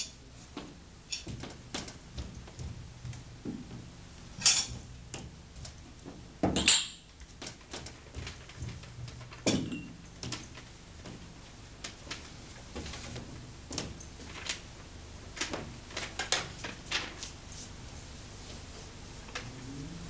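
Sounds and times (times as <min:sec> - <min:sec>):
low steady hum: 0:17.8 - 0:20.0.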